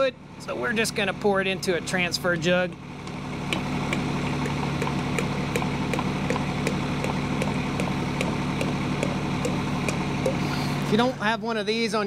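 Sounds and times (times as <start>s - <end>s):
engine idling: 0.0s - 12.0s
light regular ticking: 2.7s - 10.4s.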